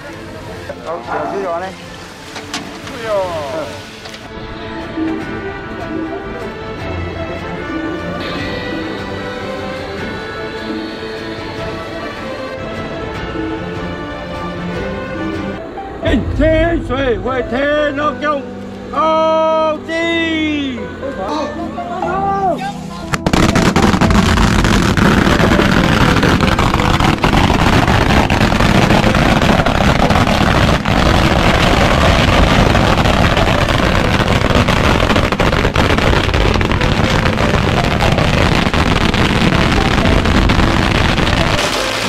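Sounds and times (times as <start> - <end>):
firecrackers crackling: 0.0 - 4.4, 23.1 - 42.0.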